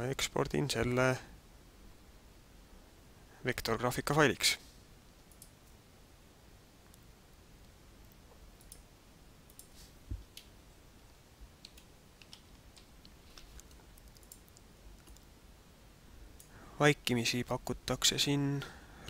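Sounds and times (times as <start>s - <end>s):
computer keys typing: 8.0s - 8.8s, 11.6s - 15.3s.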